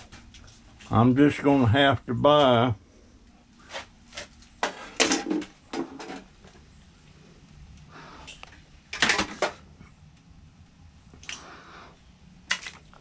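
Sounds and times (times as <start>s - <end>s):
hard objects clattering and knocking: 4.2s - 6.6s.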